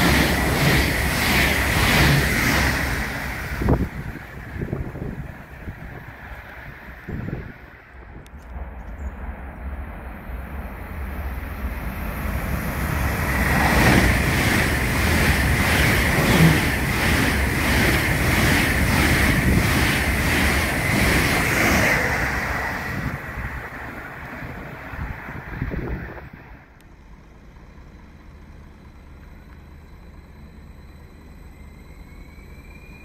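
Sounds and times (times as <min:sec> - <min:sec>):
rhythmic wheel clatter: 0:00.0 - 0:03.9, 0:12.9 - 0:22.6
high-speed train passing: 0:00.0 - 0:33.0
steady high whine: 0:00.0 - 0:33.0
wind buffeting microphone: 0:01.6 - 0:08.4, 0:12.4 - 0:26.6.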